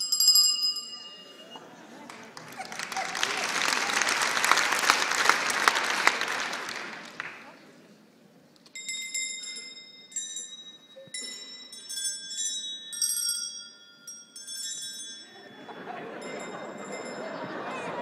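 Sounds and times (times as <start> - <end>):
high-pitched bells ringing: 0.0 - 1.8, 8.7 - 18.0
crowd noise: 0.7 - 8.7, 15.2 - 18.0.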